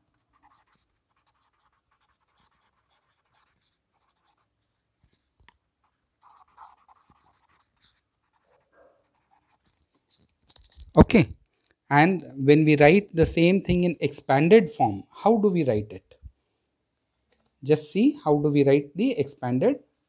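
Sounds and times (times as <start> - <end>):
marker pen scratching on paper: 0.0 - 10.8.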